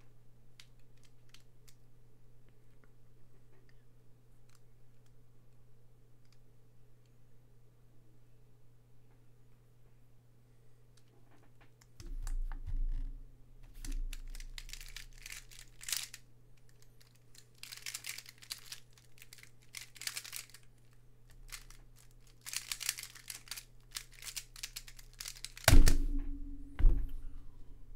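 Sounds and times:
plastic puzzle clicking: 0:13.8 - 0:25.7
loud sharp thump: 0:25.7 - 0:27.4.

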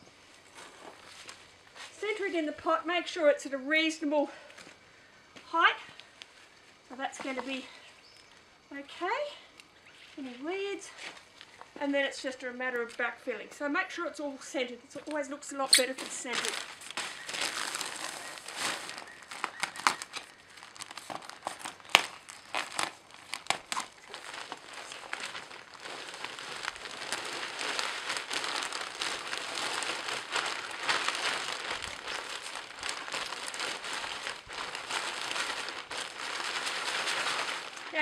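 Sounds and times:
plastic bag crinkling: 0:15.7 - 0:38.0.

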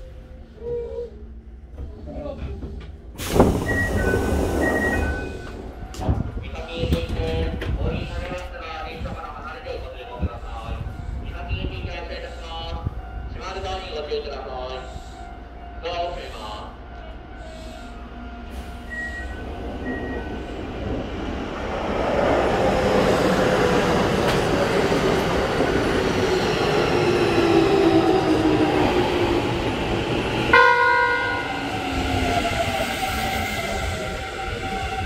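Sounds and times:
train wheel noise: 0:01.7 - 0:14.0, 0:16.1 - 0:35.0
train horn blast: 0:30.5 - 0:31.5.

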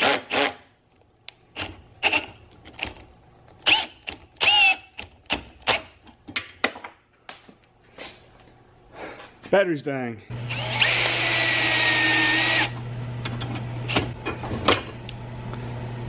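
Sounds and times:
cordless drill whirring: 0:03.6 - 0:04.9, 0:10.5 - 0:12.8.

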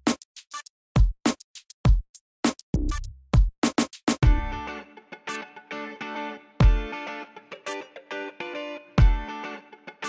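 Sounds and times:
drum machine beat: 0:00.0 - 0:04.6, 0:06.6 - 0:06.9, 0:09.0 - 0:09.3.

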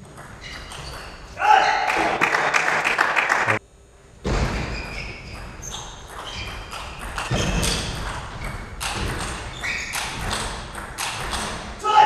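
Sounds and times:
shoes squeaking on floor: 0:00.3 - 0:01.8, 0:04.4 - 0:11.6.

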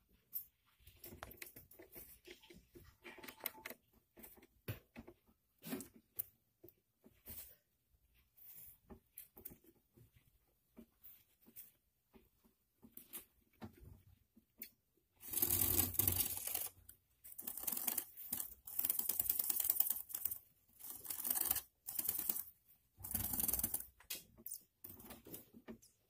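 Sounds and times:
gerbils crackling and scratching: 0:15.2 - 0:26.0.

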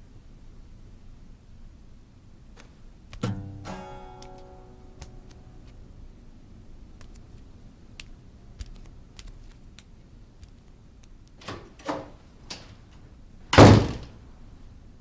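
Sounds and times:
door shutting with a thud: 0:11.4 - 0:12.7, 0:13.5 - 0:14.2.

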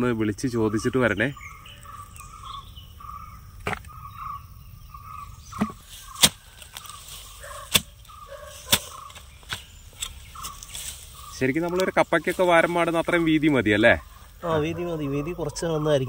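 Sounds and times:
faint chirping call: 0:00.0 - 0:16.0
hoe chopping into soil: 0:05.5 - 0:06.9, 0:07.6 - 0:10.9.

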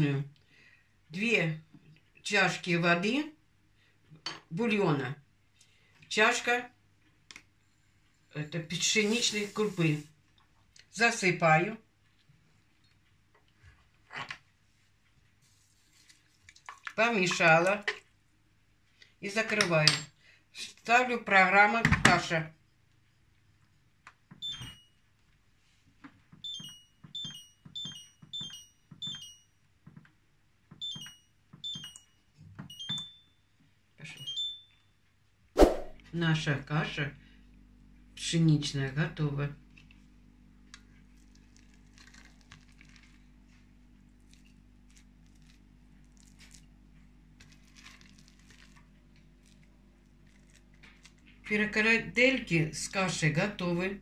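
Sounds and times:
spoon scraping porridge: 0:08.8 - 0:10.1
short high control panel beeps: 0:24.4 - 0:24.9, 0:26.4 - 0:29.4, 0:30.8 - 0:32.1, 0:32.7 - 0:33.3, 0:34.2 - 0:34.8
low steady hum: 0:35.9 - 0:54.0.

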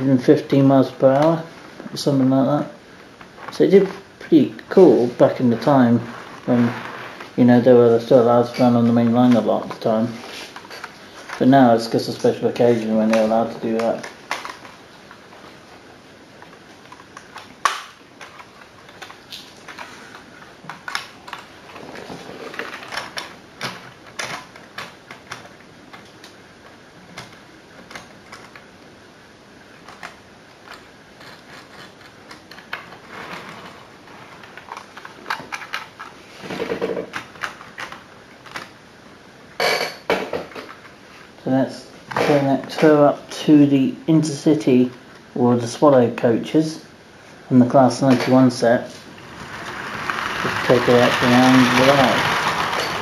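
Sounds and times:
soft rustles: 0:04.9 - 0:07.6, 0:08.3 - 0:11.5
plastic model train cars clicking: 0:08.4 - 0:14.8, 0:16.4 - 0:26.4, 0:27.2 - 0:28.7, 0:29.8 - 0:38.8, 0:49.2 - 0:53.0.

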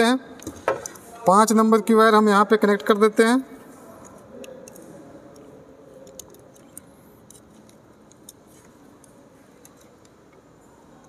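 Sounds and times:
screwdriver clicking on terminals: 0:06.0 - 0:10.4.

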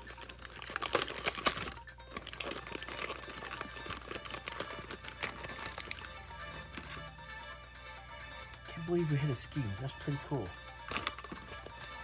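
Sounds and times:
foil wrapper crinkling: 0:00.0 - 0:07.1, 0:10.2 - 0:12.0
quiet background music: 0:00.0 - 0:12.0.

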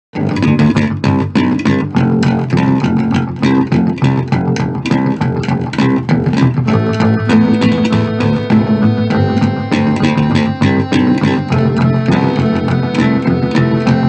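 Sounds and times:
guitar playing: 0:00.2 - 0:14.0
plucked bass line: 0:00.2 - 0:14.0.

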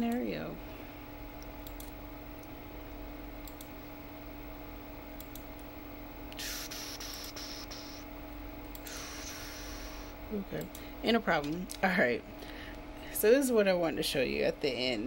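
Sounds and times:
low electrical hum: 0:00.0 - 0:15.0
computer mouse clicks: 0:01.6 - 0:01.9, 0:03.4 - 0:03.7, 0:05.2 - 0:05.5
hissing rush of noise: 0:06.4 - 0:08.1, 0:08.8 - 0:10.3.

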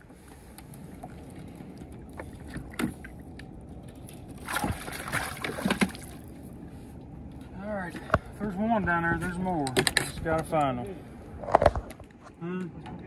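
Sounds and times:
water lapping around boat: 0:00.0 - 0:08.6
fish splashing into water: 0:04.3 - 0:06.3.

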